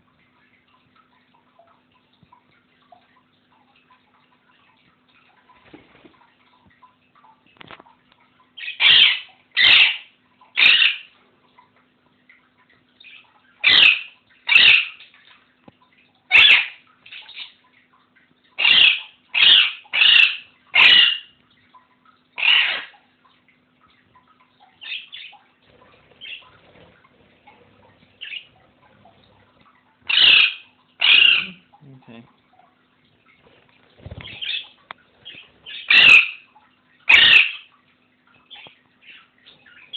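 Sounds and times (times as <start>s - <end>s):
parakeet squawking: 8.6s - 11.1s, 13.0s - 15.0s, 16.3s - 17.5s, 18.6s - 21.3s, 22.4s - 22.9s, 24.8s - 25.4s, 26.2s - 26.6s, 27.5s - 29.0s, 30.1s - 31.6s, 34.1s - 36.4s, 37.1s - 37.7s.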